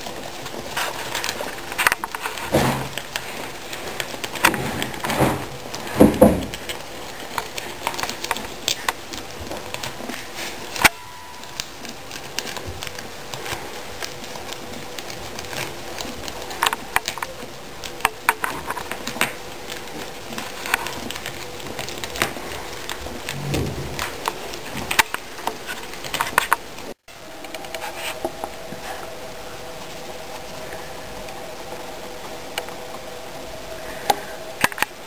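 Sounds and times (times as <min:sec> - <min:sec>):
guinea pigs chewing greens: 0:00.0 - 0:35.0
rustling in wood shavings: 0:00.0 - 0:35.0
low thump: 0:23.3 - 0:24.0.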